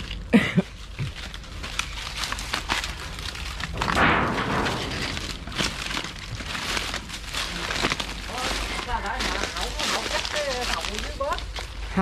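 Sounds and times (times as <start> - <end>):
footsteps crunching on dry leaves: 0.0 - 12.0
fronds rustling swish: 0.8 - 11.9.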